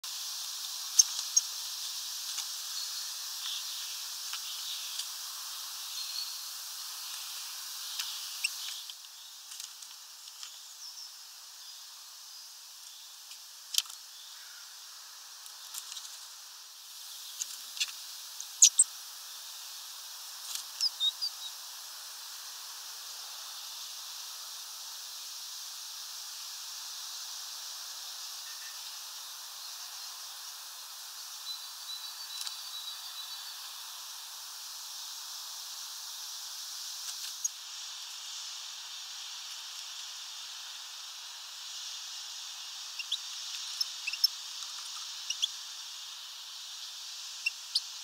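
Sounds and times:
steady outdoor hiss: 0.0 - 48.0
small birds chirping: 0.7 - 1.6, 2.4 - 9.5, 17.0 - 18.9, 20.6 - 21.6, 41.7 - 45.9, 46.6 - 48.0.

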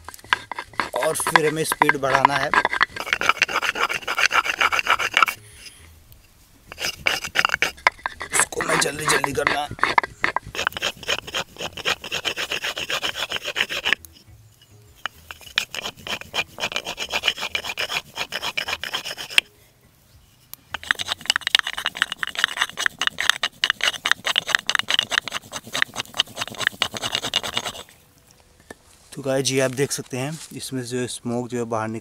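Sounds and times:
wooden block rubbing on board: 0.0 - 5.8, 6.7 - 14.0, 15.0 - 19.5, 20.7 - 27.9.

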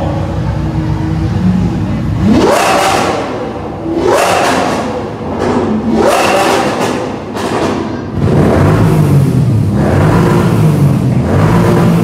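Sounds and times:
engine idling rumble: 0.0 - 2.6
engine revving: 2.0 - 12.0.

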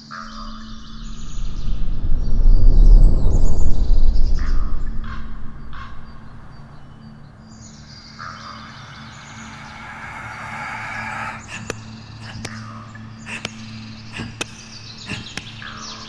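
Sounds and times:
deep low rumble: 1.0 - 11.7.

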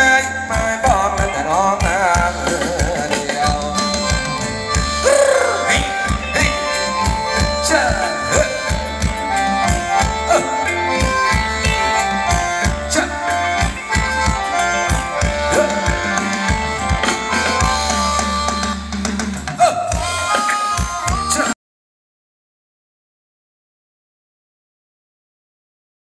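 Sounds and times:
melody of held notes: 0.0 - 19.4
band music with drum and bass: 0.0 - 21.6.

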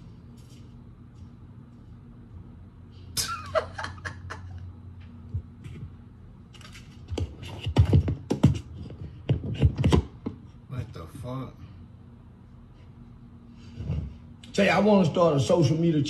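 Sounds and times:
low steady hum: 0.0 - 16.0
man laughing: 3.2 - 4.7.

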